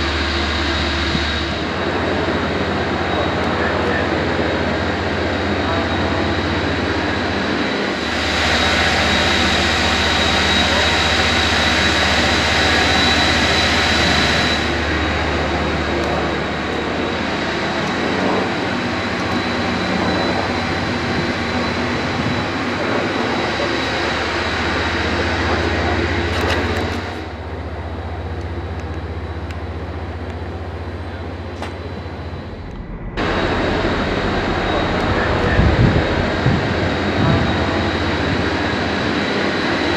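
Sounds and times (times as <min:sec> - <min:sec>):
thin high whine: 0:00.0 - 0:27.1, 0:29.3 - 0:39.9
ventilation fans whirring: 0:00.0 - 0:39.9
low hum: 0:24.2 - 0:39.5.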